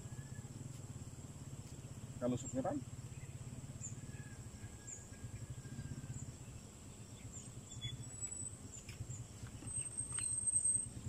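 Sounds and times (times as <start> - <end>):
faint whistle: 9.6 - 11.0.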